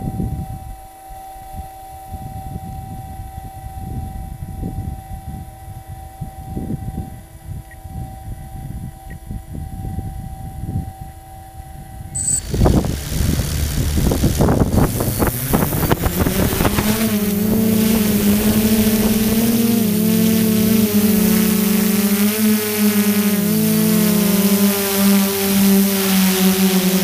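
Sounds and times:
gusty wind buffeting: 11.7s - 27.0s
drone motors buzzing: 12.2s - 27.0s.

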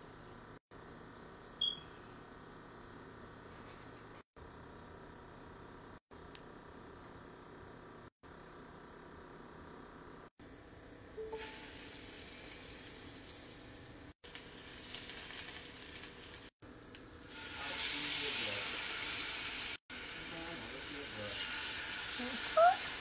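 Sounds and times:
butter sizzling in a skillet: 11.4s - 16.5s, 17.2s - 23.0s.

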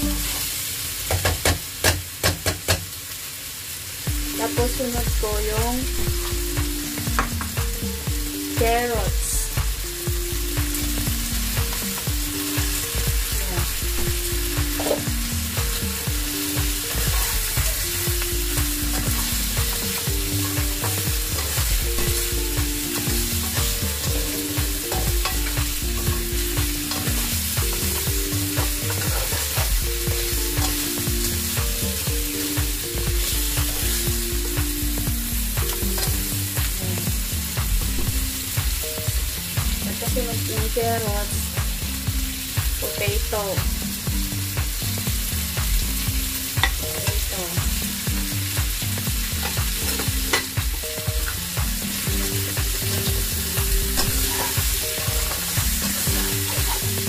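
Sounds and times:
food sizzling in hot oil: 0.0s - 57.0s
quiet background tune: 4.0s - 57.0s
spatula scraping a pan: 23.0s - 29.7s, 54.0s - 57.0s.

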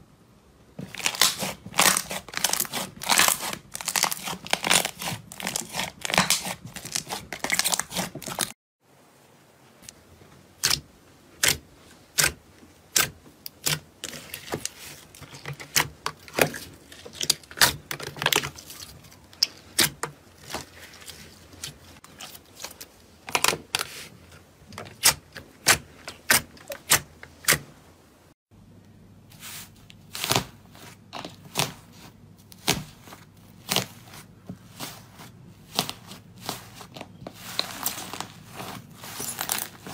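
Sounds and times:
slime squishing: 0.8s - 8.5s, 10.6s - 27.6s, 29.3s - 39.9s.

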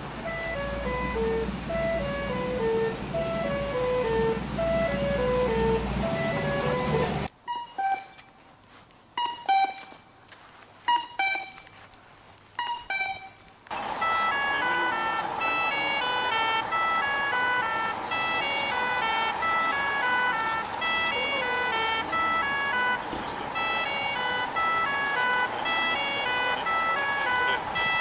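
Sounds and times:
electronic cuckoo walk tone: 0.3s - 8.4s, 9.2s - 10.1s, 10.9s - 11.9s, 12.6s - 28.0s
electronic tune of stepping notes: 9.2s - 10.0s, 10.9s - 11.8s, 12.6s - 13.4s.

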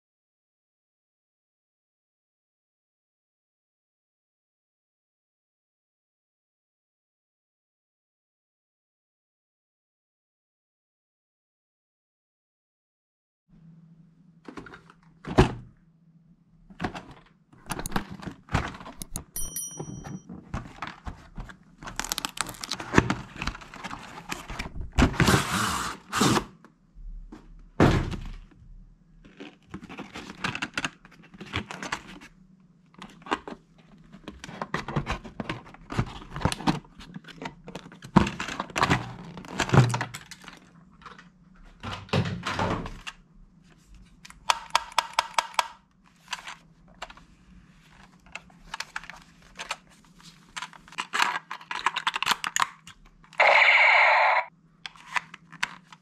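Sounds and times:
cardboard and plastic handling: 16.7s - 25.5s, 29.2s - 32.3s, 46.1s - 52.9s.

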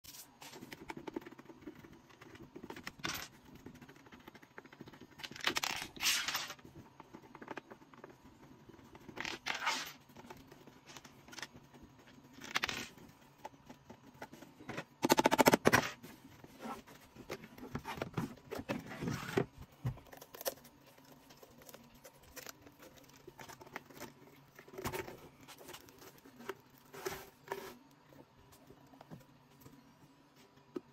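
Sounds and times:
tearing scraping and crinkling: 5.3s - 6.6s, 9.2s - 10.0s.

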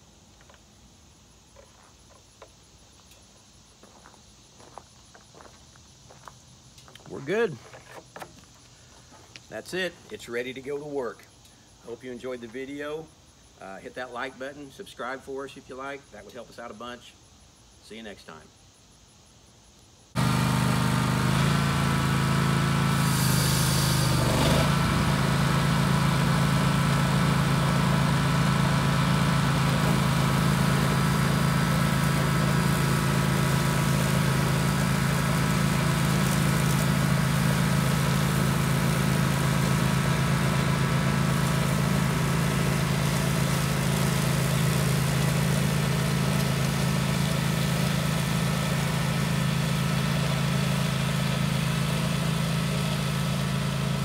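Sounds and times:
brush cutter engine running: 20.2s - 54.0s.

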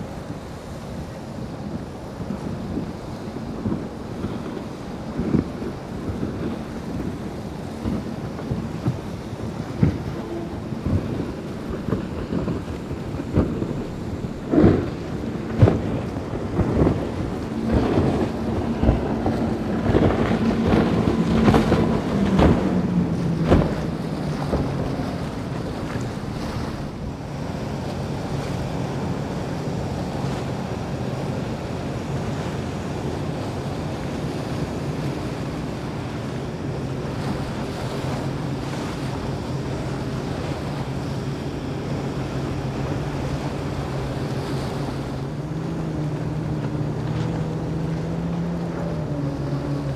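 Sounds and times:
hull thumping on waves: 0.0s - 49.9s
outboard motor running: 0.0s - 49.9s
powerboat engines passing: 0.0s - 49.9s
water: 0.0s - 49.9s
wind: 0.0s - 49.9s.

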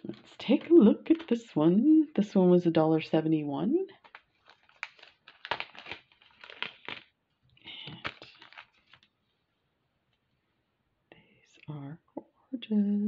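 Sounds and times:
plastic bag crinkling: 0.0s - 1.4s, 3.9s - 9.2s.

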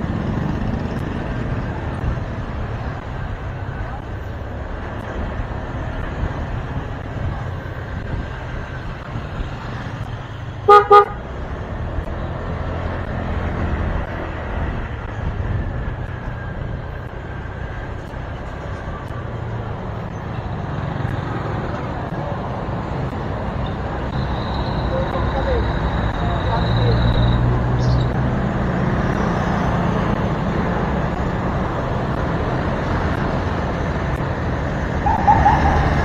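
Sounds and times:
motorcycle horn beeping: 10.7s - 11.2s.

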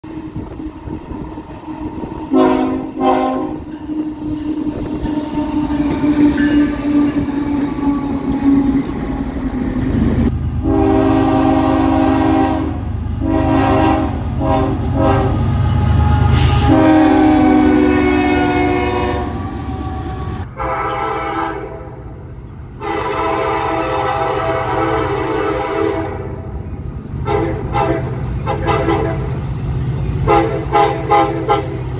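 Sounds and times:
locomotive horn blasts: 2.3s - 7.8s, 10.6s - 22.2s, 22.8s - 26.6s, 27.2s - 29.4s, 30.2s - 31.9s.

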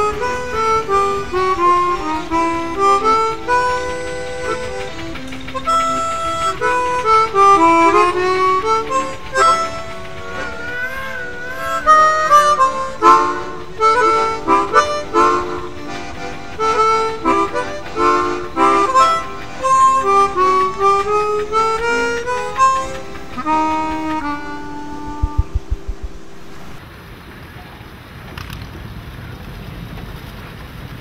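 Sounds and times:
background music melody: 0.0s - 26.8s
low thumps: 17.5s - 26.8s.

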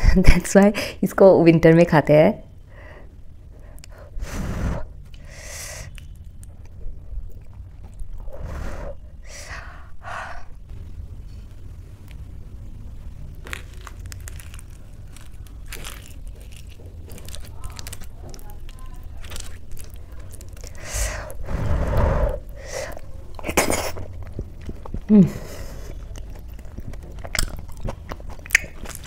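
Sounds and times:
wet chewing: 5.9s - 8.4s, 13.4s - 29.0s.

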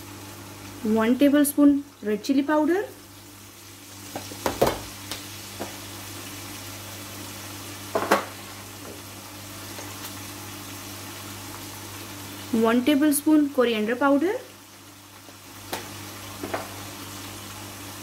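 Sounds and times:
food sizzling in oil: 0.0s - 18.0s
sharp knocks on wok: 4.1s - 4.9s, 7.9s - 8.3s.

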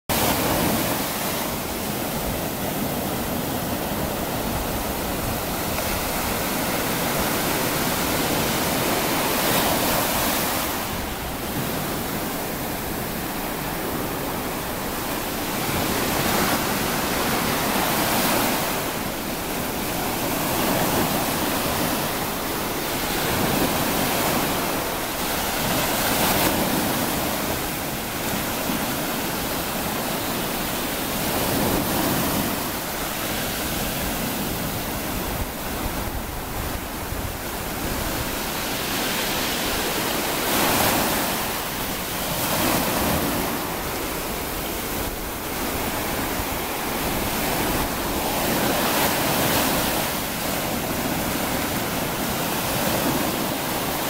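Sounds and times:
waves washing over shingle beach: 0.1s - 54.0s.

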